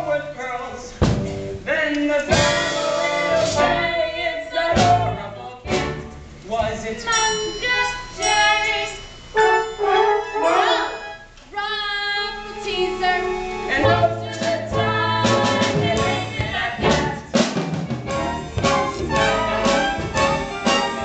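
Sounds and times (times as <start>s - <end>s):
drum hits: 1.0s - 1.6s, 2.3s - 3.6s, 4.7s - 8.2s, 14.4s - 21.0s
young voices singing: 1.8s - 6.0s, 6.7s - 17.4s
instrumental accompaniment: 2.3s - 11.5s, 12.2s - 21.0s
bass line: 13.8s - 21.0s.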